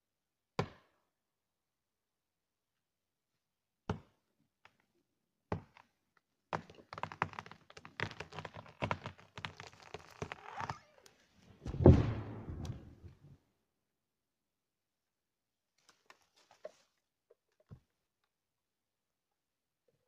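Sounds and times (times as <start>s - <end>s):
wood cracking and branches snapping: 6.8s - 12.9s
tree trunk thudding on ground: 11.6s - 13.0s.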